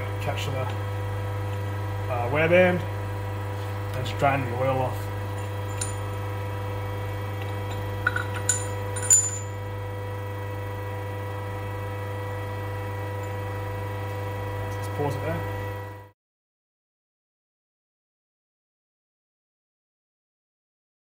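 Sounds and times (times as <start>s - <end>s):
low electrical hum: 0.0s - 16.1s
light metallic clinks: 7.7s - 9.5s.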